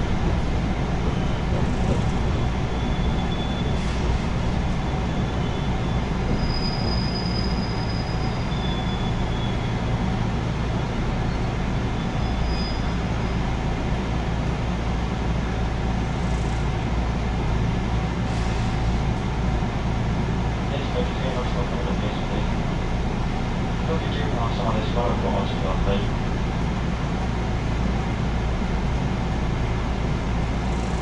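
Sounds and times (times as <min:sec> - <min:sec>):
train wheels rumbling on track: 0:00.0 - 0:31.0
high wheel squeals: 0:01.1 - 0:09.8, 0:11.3 - 0:13.5.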